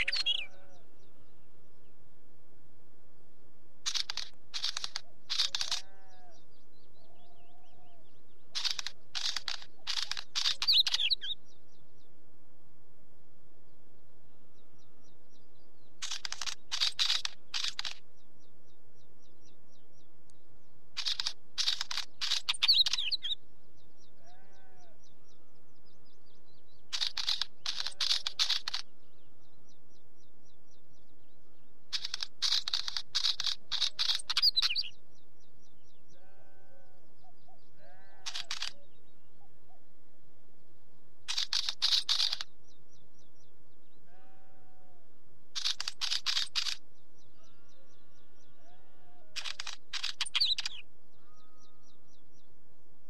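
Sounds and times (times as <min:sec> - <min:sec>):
bird song crackling clicking phrases: 0:00.0 - 0:01.2, 0:03.8 - 0:12.1, 0:14.8 - 0:36.5, 0:37.2 - 0:39.4, 0:41.2 - 0:44.6, 0:45.5 - 0:52.5.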